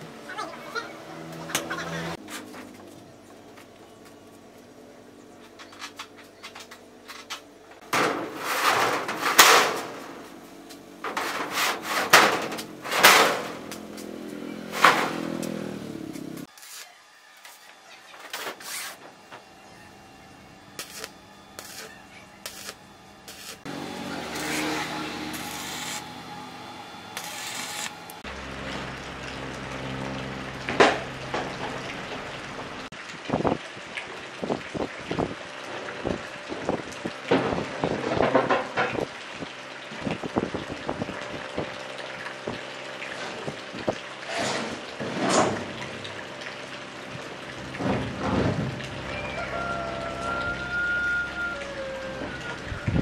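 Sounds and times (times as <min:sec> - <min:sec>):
steel sheet scraping metal floor: 0:07.9 - 0:10.3, 0:11.0 - 0:14.0, 0:14.6 - 0:15.6, 0:20.8 - 0:26.2, 0:27.1 - 0:28.2
arc welding crackling hiss: 0:16.2 - 0:17.7, 0:20.8 - 0:26.3, 0:27.1 - 0:28.2.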